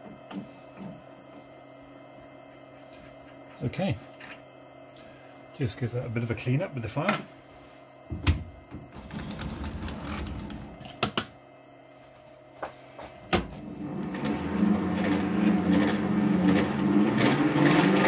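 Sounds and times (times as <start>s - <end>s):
lathe spindle humming: 9.0s - 10.9s, 13.5s - 18.0s.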